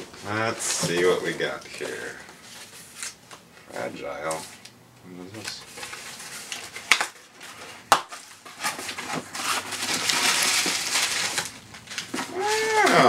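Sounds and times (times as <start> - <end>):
paper tearing and crumpling: 8.2 - 13.0.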